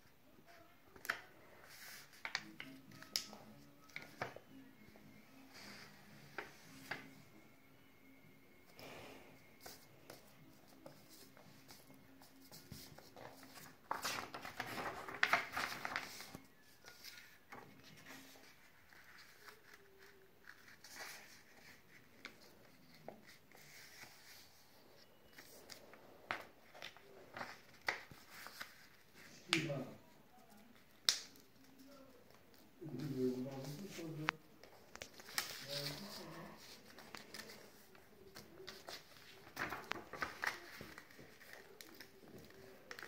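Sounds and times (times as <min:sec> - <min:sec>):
paper rustling and sliding: 0:10.8 - 0:29.3, 0:33.0 - 0:43.0.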